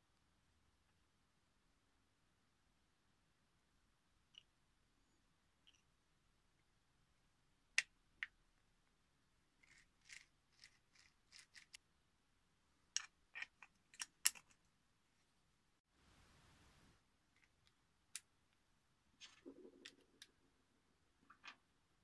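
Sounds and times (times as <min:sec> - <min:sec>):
plastic parts clicking and scraping: 0:09.6 - 0:11.8, 0:13.0 - 0:14.7.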